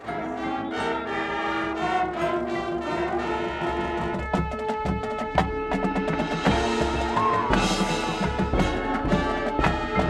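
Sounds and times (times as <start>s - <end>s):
brass chords: 0.0s - 10.0s
sharp percussion hits: 3.8s - 10.0s.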